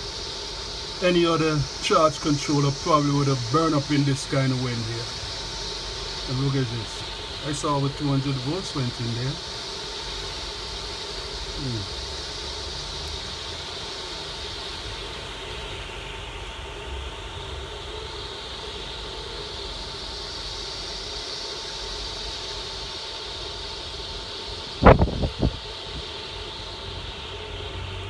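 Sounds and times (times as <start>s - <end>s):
faint high whine: 0.0s - 28.0s
wind rushing: 24.8s - 25.6s.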